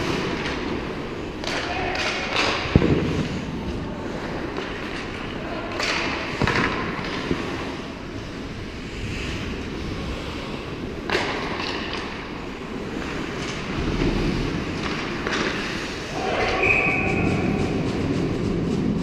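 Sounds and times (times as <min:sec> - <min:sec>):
skates scraping on ice: 0:00.0 - 0:19.0
low rumble: 0:16.9 - 0:19.0.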